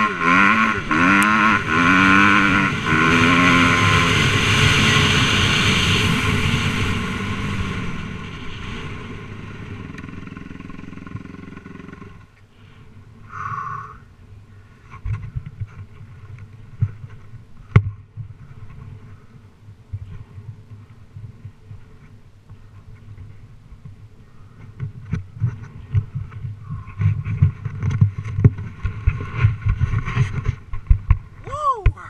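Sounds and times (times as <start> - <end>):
dirt bike engine running: 0.0 - 12.4, 24.8 - 31.4.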